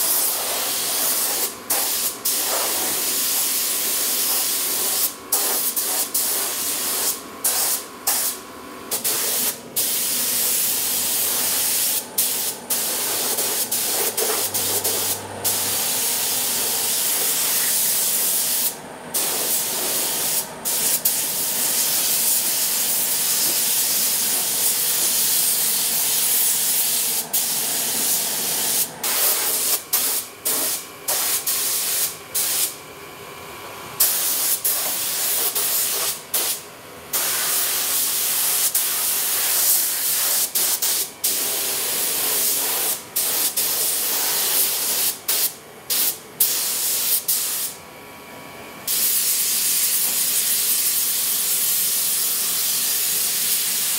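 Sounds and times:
paint spray gun hissing: 0.0 - 32.8, 34.0 - 36.6, 37.2 - 47.8, 48.9 - 53.9.

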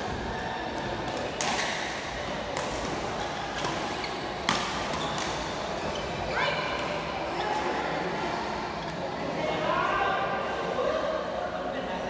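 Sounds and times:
rackets hitting shuttlecock: 0.1 - 5.9.

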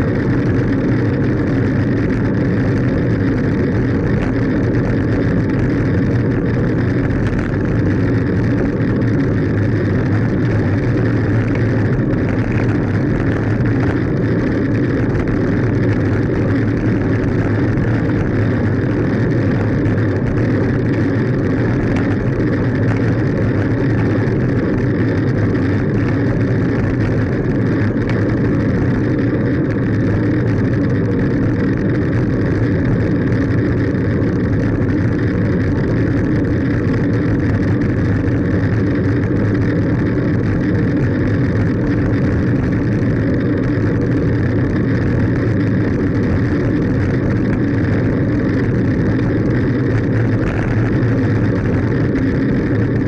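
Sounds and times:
bicycle road rumble: 0.0 - 53.0
wind noise: 0.0 - 53.0.

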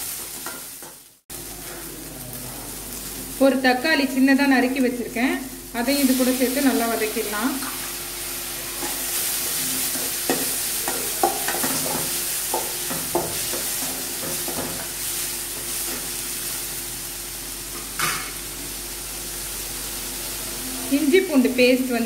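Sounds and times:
spatula scraping and stirring pan: 0.0 - 1.9, 8.7 - 16.2
vegetables sizzling in hot oil: 0.0 - 22.0.

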